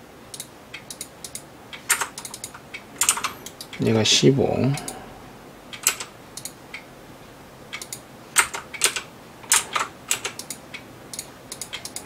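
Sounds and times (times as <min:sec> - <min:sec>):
computer mouse clicks: 0:00.3 - 0:03.8, 0:05.7 - 0:06.9, 0:07.7 - 0:12.0
keyboard keys clicking: 0:00.3 - 0:03.8, 0:07.7 - 0:12.0.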